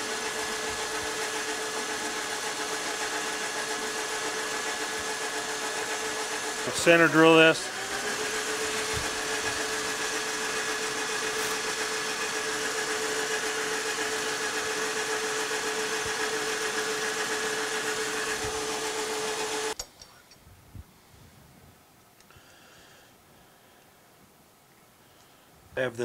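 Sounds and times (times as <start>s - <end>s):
metal lathe hum and whine: 0.0s - 19.8s.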